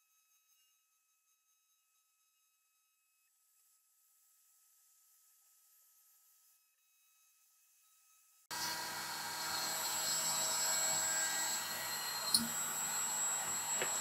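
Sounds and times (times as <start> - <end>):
small electric motor whining: 4.0 - 14.0.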